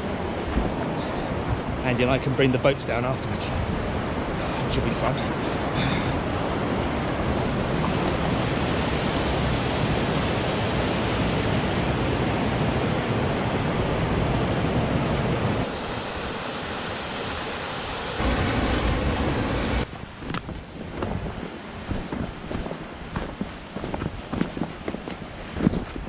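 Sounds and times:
rushing river rapid: 0:00.0 - 0:20.5.

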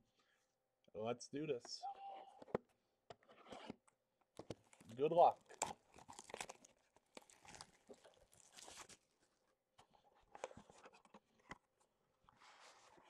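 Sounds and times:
plastic wrap crinkling: 0:04.6 - 0:09.4.

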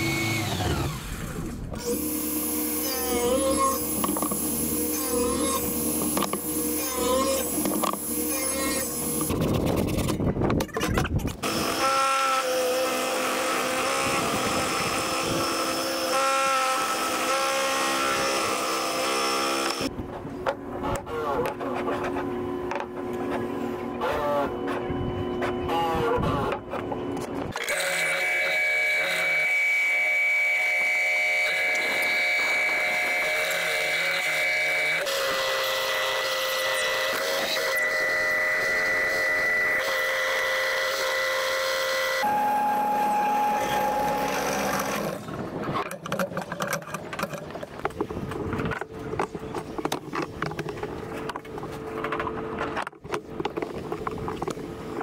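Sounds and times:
belt sander running: 0:00.0 - 0:09.4, 0:27.6 - 0:47.3
bandsaw cutting wood: 0:00.0 - 0:10.2, 0:11.4 - 0:19.9, 0:27.5 - 0:47.4
wood block whining on sanding belt: 0:00.0 - 0:10.2, 0:27.6 - 0:47.4.

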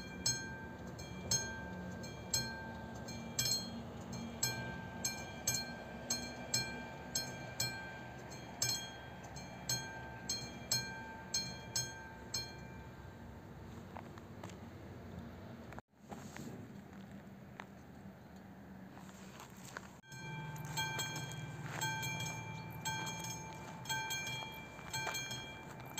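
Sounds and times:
level crossing warning bell ringing: 0:00.0 - 0:13.5, 0:20.0 - 0:25.9
low steady rumble: 0:19.8 - 0:25.9.

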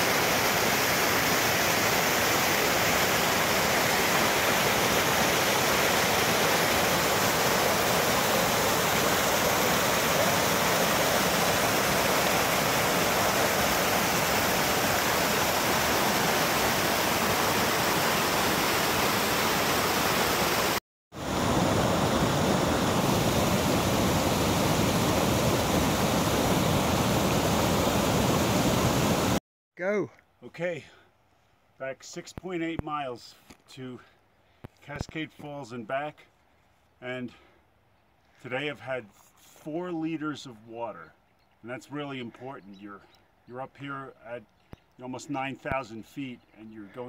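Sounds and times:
waterfall rushing over boulders: 0:00.0 - 0:29.4.

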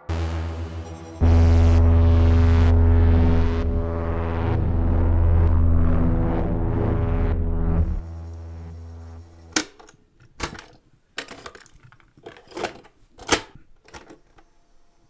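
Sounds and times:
synth music: 0:00.0 - 0:09.6.

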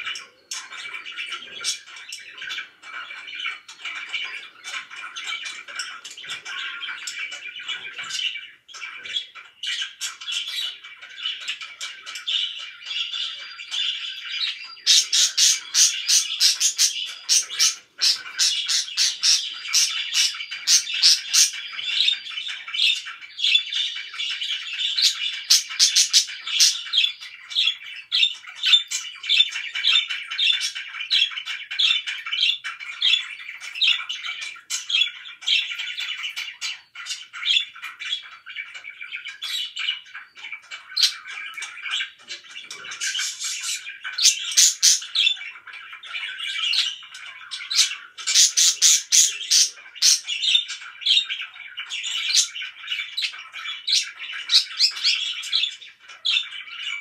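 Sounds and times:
budgerigars chattering and chirping: 0:00.0 - 0:57.0.

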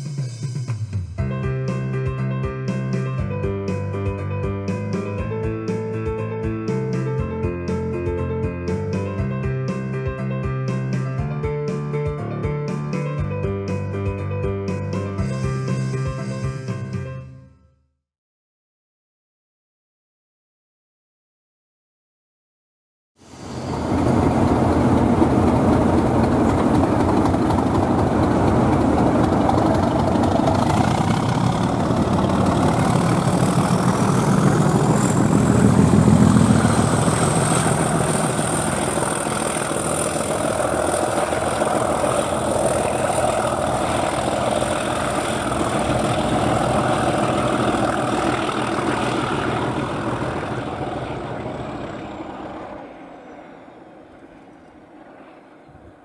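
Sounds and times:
diesel locomotives passing: 0:23.2 - 0:56.0.

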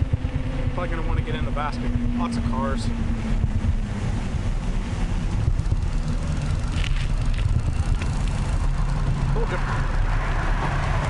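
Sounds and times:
wind on microphone: 0:00.0 - 0:11.0
bicycle tyre noise on pavement: 0:02.8 - 0:11.0.

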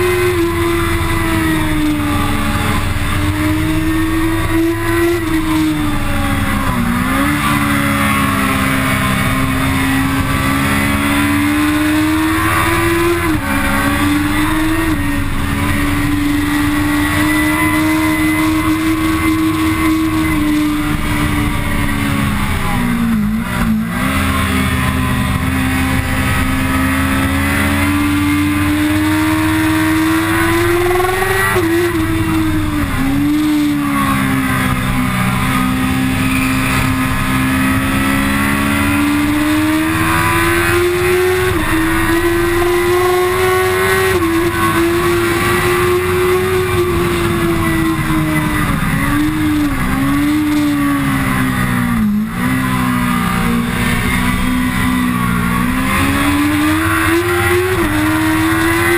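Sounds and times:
motorcycle engine at high revs: 0:00.0 - 0:58.9.

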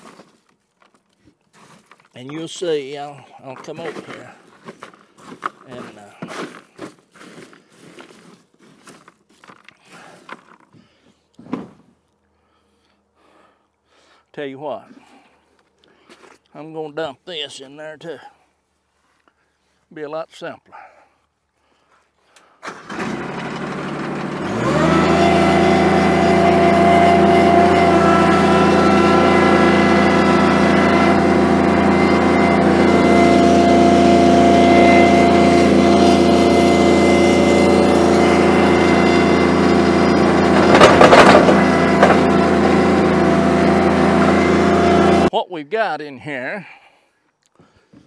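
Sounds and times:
machine motor running: 0:22.8 - 0:45.3
material clattering into metal trough: 0:40.6 - 0:42.2.

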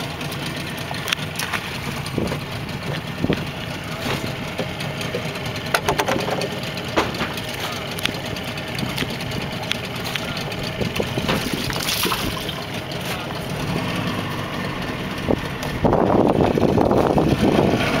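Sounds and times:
water splashes: 0:00.0 - 0:14.4
outboard motor idling: 0:00.0 - 0:18.0
small knocks: 0:02.2 - 0:12.0.

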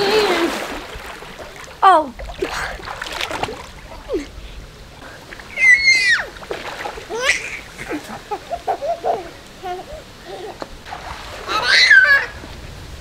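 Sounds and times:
baby laughing babble: 0:00.0 - 0:00.6, 0:07.1 - 0:10.6
pool water splashing: 0:00.0 - 0:13.0
baby squealing: 0:05.5 - 0:06.3, 0:11.5 - 0:12.4.

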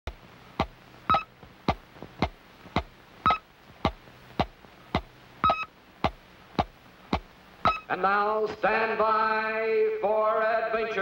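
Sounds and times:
electronic blips: 0:01.1 - 0:01.3, 0:03.2 - 0:03.4, 0:05.4 - 0:05.7, 0:07.6 - 0:07.9
short high beep: 0:05.4 - 0:05.7, 0:07.7 - 0:07.9.

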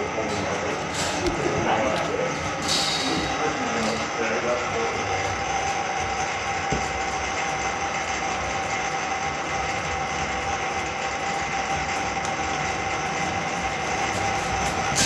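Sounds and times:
drain-cleaning machine motor whine: 0:00.0 - 0:15.0.

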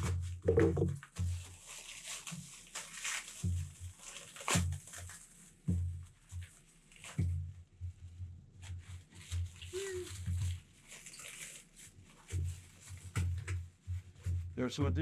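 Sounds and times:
plastic bag crinkling: 0:01.4 - 0:05.6, 0:09.0 - 0:13.1.

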